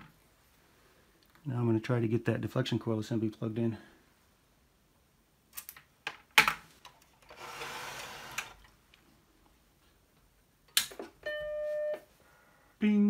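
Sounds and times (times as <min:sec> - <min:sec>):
rustling or scraping: 0:06.7 - 0:08.7.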